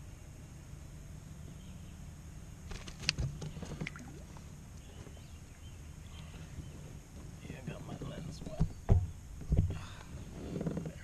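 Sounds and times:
water splashing: 3.6s - 4.5s.

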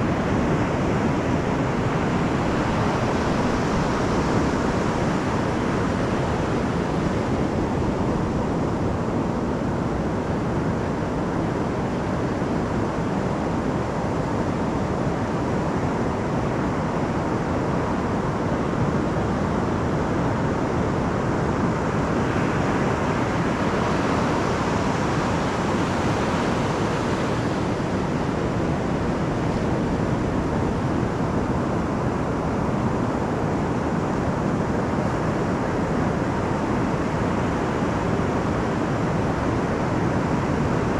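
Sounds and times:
surf washing up a beach: 0.0s - 40.9s.

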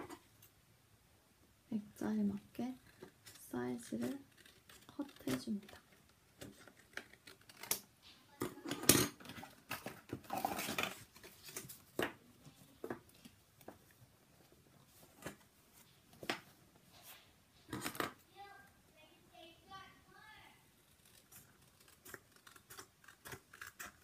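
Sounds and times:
scissors snipping paper: 2.8s - 7.8s, 20.8s - 24.0s.

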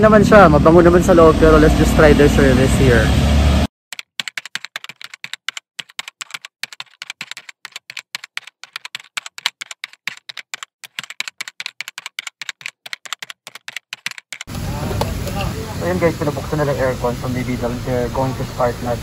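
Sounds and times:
rapid uneven clicking: 3.9s - 15.5s.

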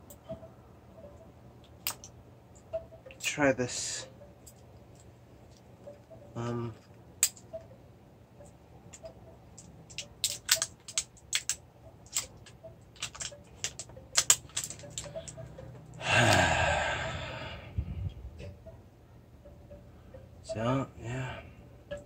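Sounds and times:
bottle clicks and crackles: 1.6s - 3.3s, 4.4s - 7.8s, 8.4s - 15.9s.

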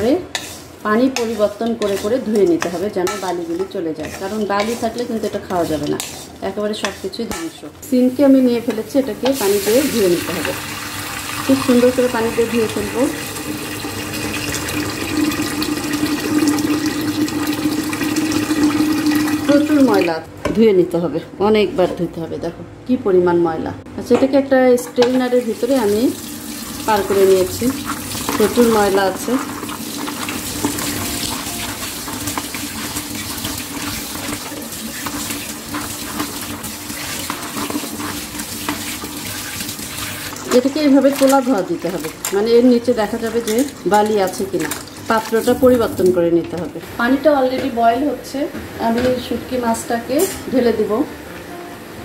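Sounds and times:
tap water running: 8.6s - 20.1s, 25.2s - 46.8s.

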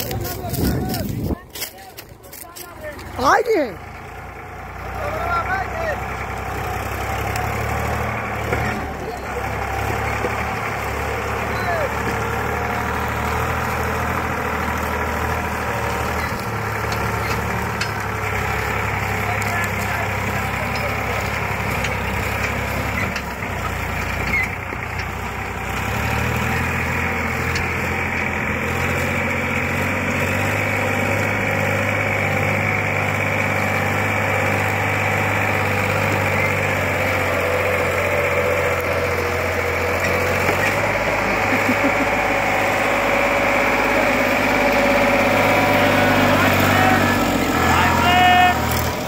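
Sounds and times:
tractor diesel engine running: 0.0s - 49.0s.

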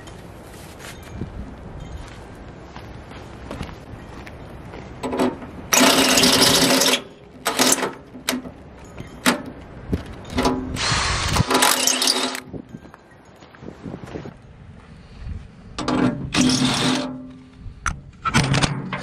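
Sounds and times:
cordless drill boring into steel: 5.7s - 7.8s, 10.8s - 12.4s, 16.3s - 17.1s.

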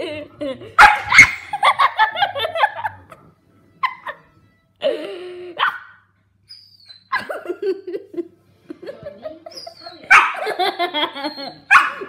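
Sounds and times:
puppy barking and yipping: 0.8s - 1.6s, 5.6s - 7.3s, 9.6s - 10.6s, 11.2s - 12.0s.

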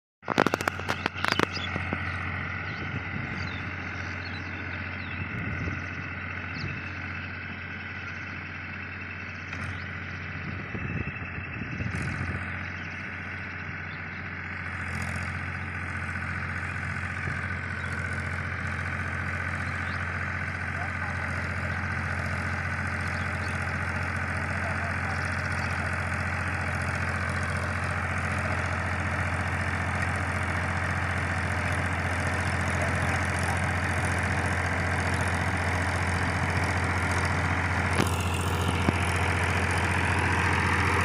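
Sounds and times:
distant tractor engine running: 0.2s - 41.0s
sharp clicks: 0.3s - 1.8s.

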